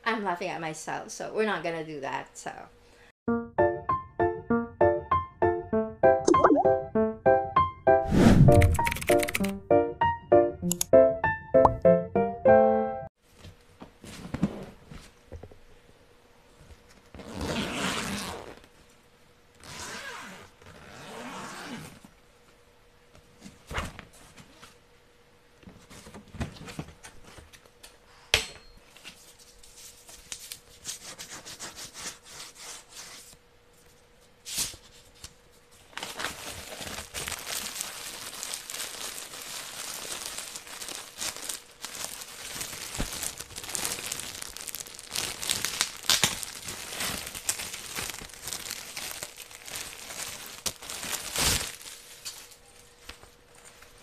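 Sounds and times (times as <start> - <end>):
sharp clicks: 8.5 - 9.6, 10.6 - 10.9
plastic bag crinkling: 36.0 - 52.6.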